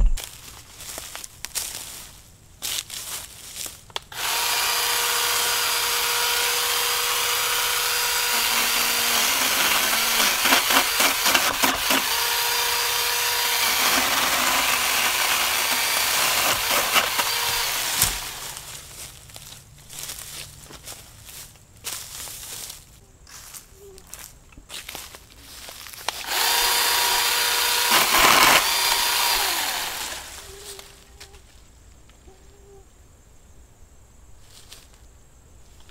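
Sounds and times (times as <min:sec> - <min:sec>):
electric pole saw whining: 0:04.1 - 0:18.8, 0:26.1 - 0:30.9
saw chain cutting branch: 0:04.1 - 0:18.8, 0:26.0 - 0:30.4.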